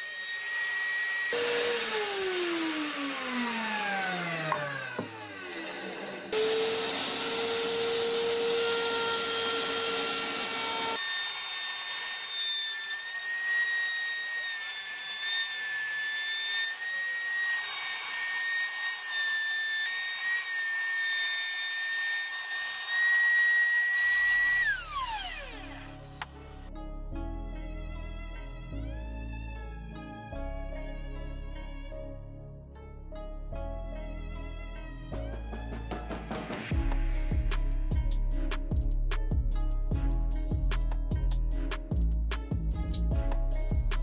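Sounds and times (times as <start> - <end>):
wood router whining: 0.0 - 26.3
motor winding down: 0.4 - 11.0, 24.1 - 26.2.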